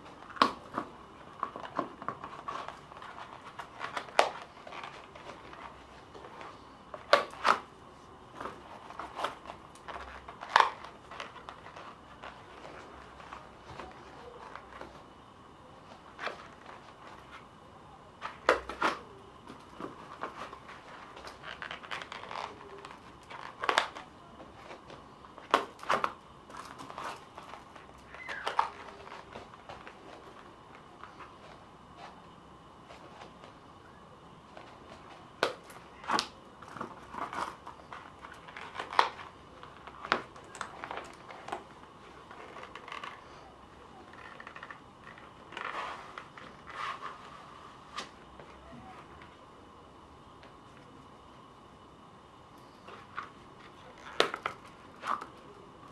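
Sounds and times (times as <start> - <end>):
leather holster rustling: 0.0 - 15.1, 18.2 - 32.2, 34.5 - 48.2.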